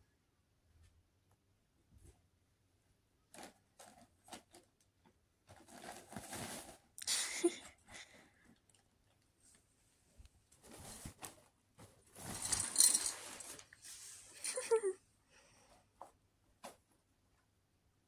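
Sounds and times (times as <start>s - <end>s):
nylon tunnel crinkling rustle: 5.5s - 7.0s, 10.6s - 14.3s.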